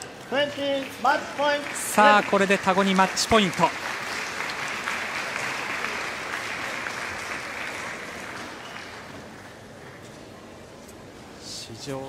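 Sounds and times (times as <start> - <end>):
spectators applauding: 0.4 - 10.0.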